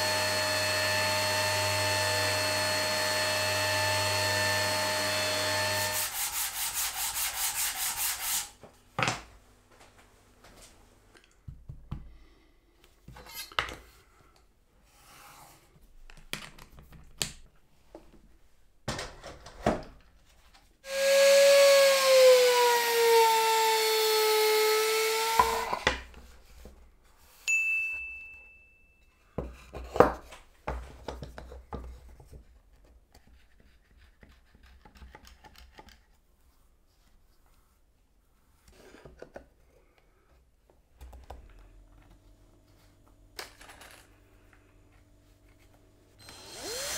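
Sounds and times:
power tool motor running: 0.0 - 6.1, 46.2 - 46.9.

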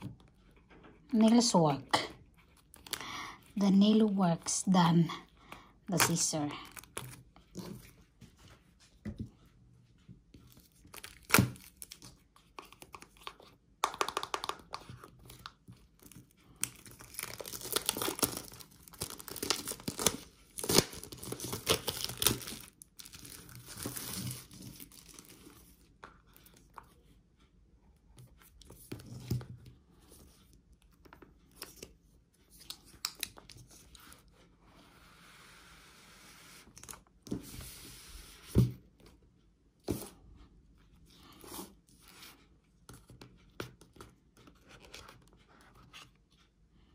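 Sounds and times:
plastic wrap crinkling: 16.0 - 25.3.

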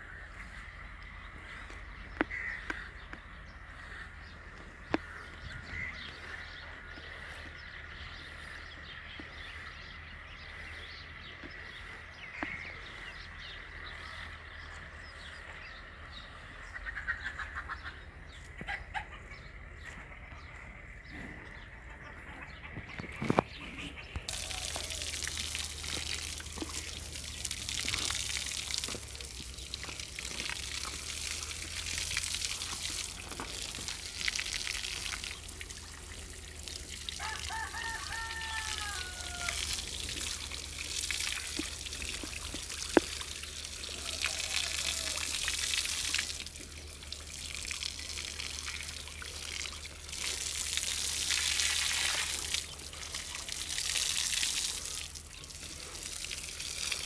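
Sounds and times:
water spraying and splashing: 23.1 - 57.0.

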